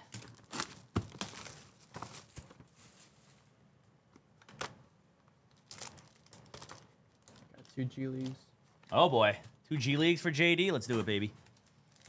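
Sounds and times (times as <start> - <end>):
cardboard rustling: 0.2 - 3.4.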